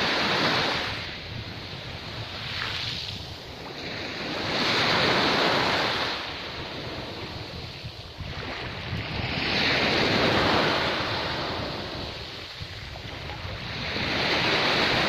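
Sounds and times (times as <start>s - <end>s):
waves breaking on beach: 0.0s - 15.0s.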